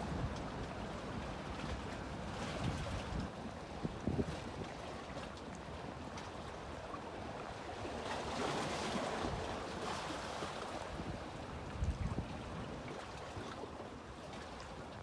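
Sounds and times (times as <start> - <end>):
wind buffeting microphone: 2.5 - 4.7, 10.9 - 12.8.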